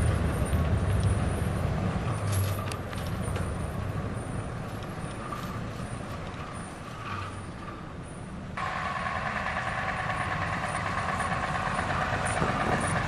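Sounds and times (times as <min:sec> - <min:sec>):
truck diesel engine rumble: 0:00.0 - 0:13.0.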